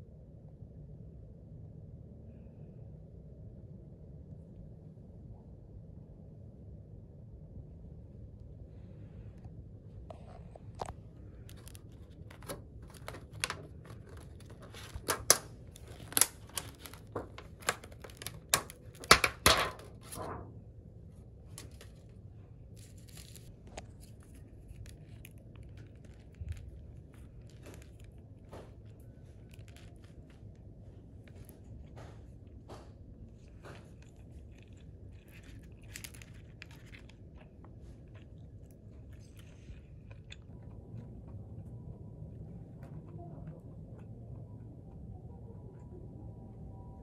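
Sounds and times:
plastic lid crackling and snapping: 10.8 - 20.5, 33.4 - 38.2.

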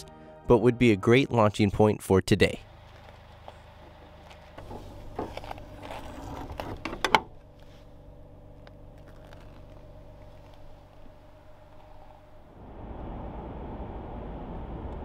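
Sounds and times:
low mechanical hum: 2.5 - 15.0
handling noise rustling: 2.6 - 12.5.

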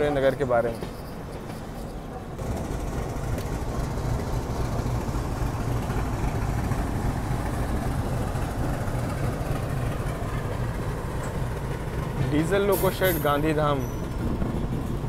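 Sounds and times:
diesel locomotive engine running: 0.0 - 15.0.

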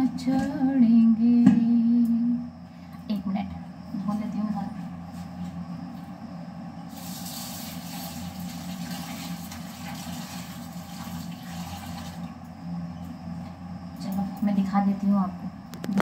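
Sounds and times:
steady low hum: 0.0 - 16.0
tap water running: 6.9 - 12.4.

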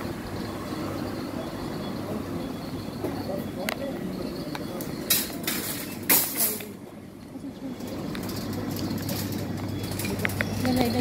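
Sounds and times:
shopping cart rattling on tiles: 5.0 - 6.6, 7.8 - 11.0.

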